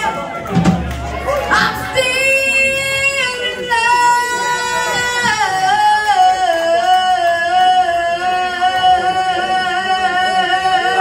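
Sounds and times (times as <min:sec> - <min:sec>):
live band playing: 0:00.0 - 0:07.1.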